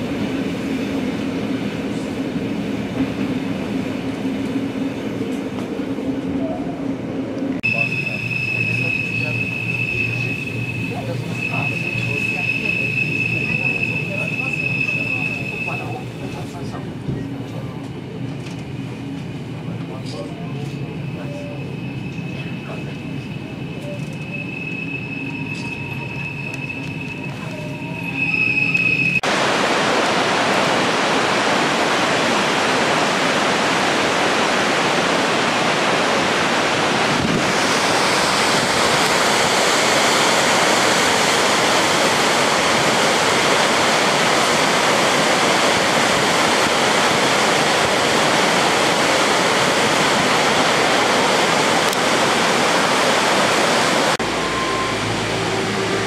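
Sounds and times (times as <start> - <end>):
railway wheels squealing: 7.6 - 16.6, 20.3 - 29.2, 53.9 - 56.0
large waterfall rushing: 29.2 - 56.0.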